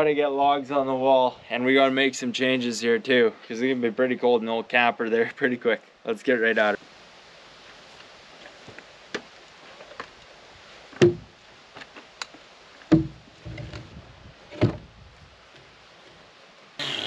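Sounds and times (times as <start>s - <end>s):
log knocking on wood wall: 11.0s - 11.3s, 12.9s - 13.2s.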